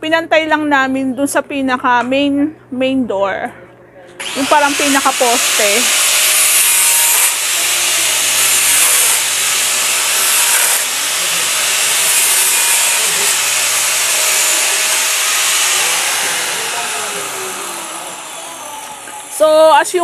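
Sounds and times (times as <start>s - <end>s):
angle grinder grinding: 4.2s - 19.8s.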